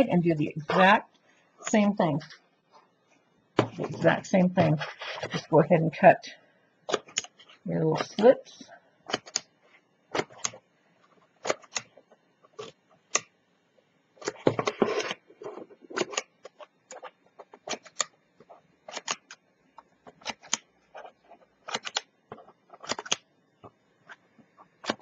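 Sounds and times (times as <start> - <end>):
paper rustling: 3.8 - 5.5.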